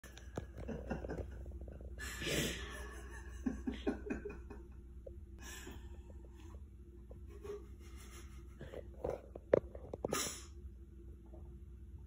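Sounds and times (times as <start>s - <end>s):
man laughing breathily: 0.5s - 4.8s.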